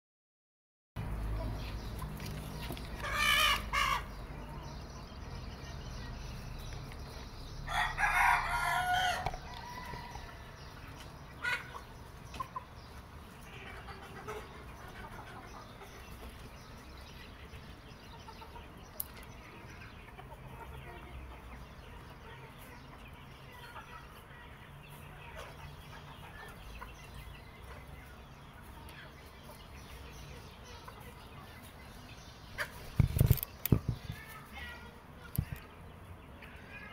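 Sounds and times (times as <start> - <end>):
rooster crowing: 7.7 - 10.6.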